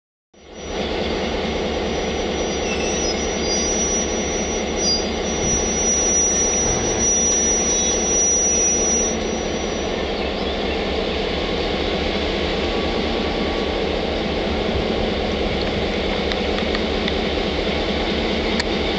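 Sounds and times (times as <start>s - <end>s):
thin high squeal: 0.4s - 10.2s
diesel locomotive engine running: 0.4s - 18.9s.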